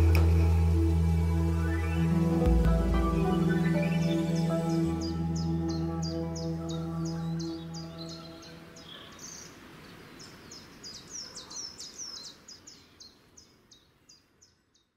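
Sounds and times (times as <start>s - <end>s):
ambient music tones: 0.0s - 8.8s
birds chirping: 0.0s - 14.9s.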